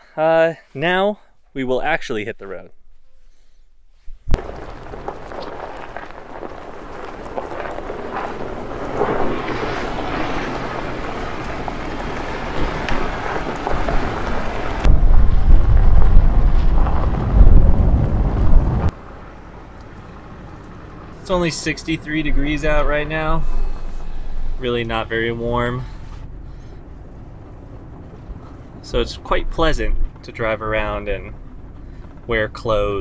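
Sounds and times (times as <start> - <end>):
road and wind noise: 4.0 - 33.0
wind buffeting microphone: 4.2 - 18.9.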